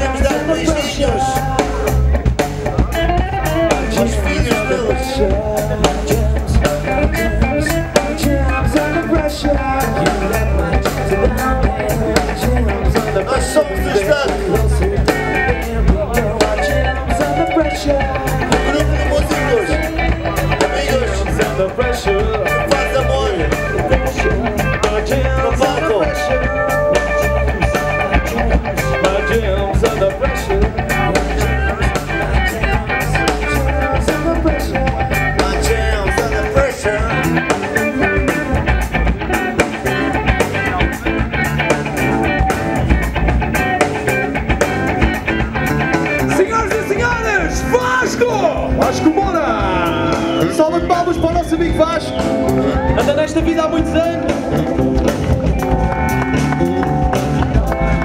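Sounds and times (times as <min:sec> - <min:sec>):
person singing: 0:00.0 - 0:38.6, 0:52.1 - 0:58.0
live band playing: 0:00.0 - 0:58.0.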